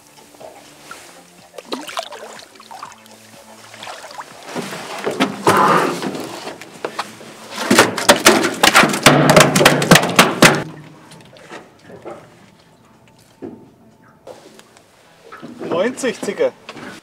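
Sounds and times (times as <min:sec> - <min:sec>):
water splashing: 0:01.0 - 0:05.4
fish thrashing on metal deck: 0:07.6 - 0:10.8.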